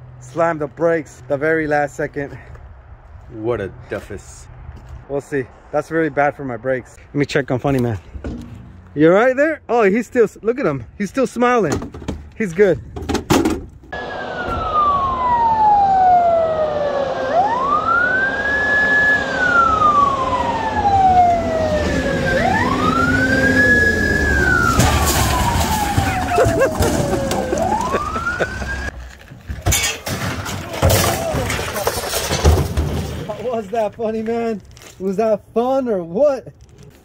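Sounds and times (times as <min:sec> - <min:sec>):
siren wailing: 0:13.9 - 0:28.9.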